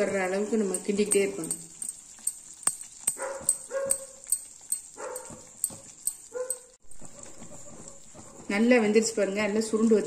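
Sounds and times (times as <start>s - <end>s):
thick batter bubbling: 0.0s - 10.0s
sharp clicks and pops: 0.7s - 8.2s.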